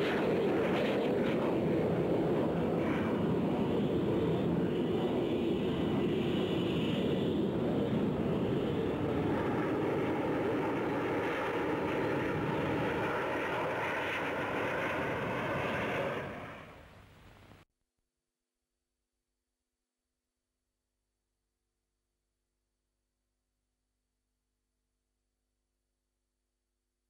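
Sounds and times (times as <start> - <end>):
jet roar: 0.0 - 17.4.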